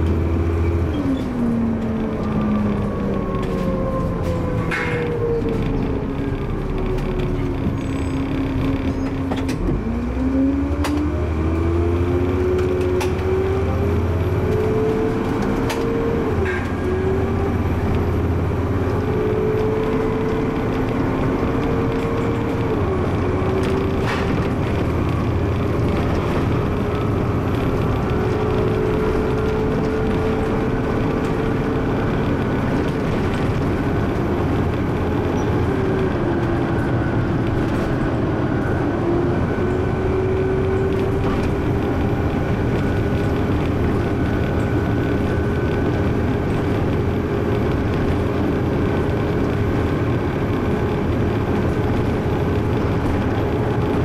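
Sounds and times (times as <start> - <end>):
bus engine and road rumble: 0.0 - 54.0.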